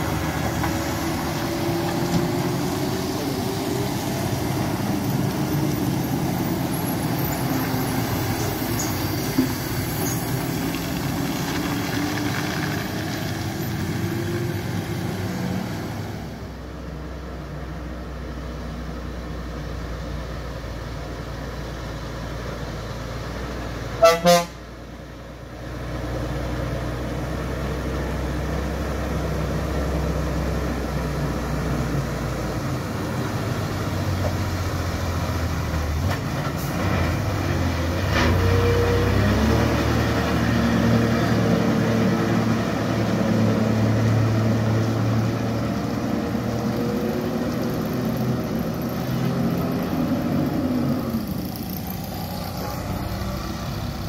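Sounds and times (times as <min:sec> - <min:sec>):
diesel truck engines under load: 0:00.0 - 0:54.0
truck horn blasts: 0:24.0 - 0:24.7.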